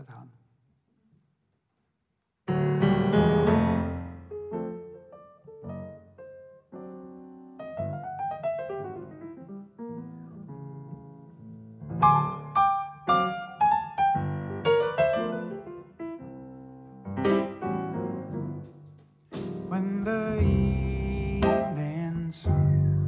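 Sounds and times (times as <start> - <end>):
grand piano jazz chords: 2.5 - 23.0
jazz band playing: 18.0 - 23.0.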